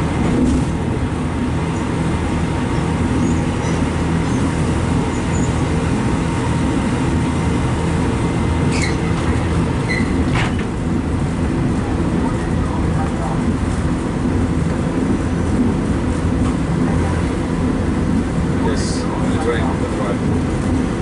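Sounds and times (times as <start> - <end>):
train wheels rumbling on track: 0.0 - 21.0
high squeaks: 8.7 - 9.1.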